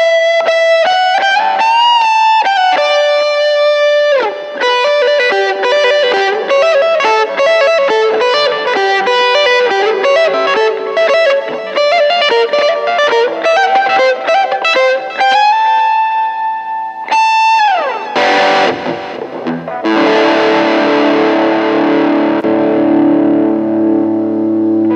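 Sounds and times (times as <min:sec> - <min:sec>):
electric guitar lead notes: 0:00.0 - 0:24.9
distorted guitar chord: 0:04.2 - 0:24.9.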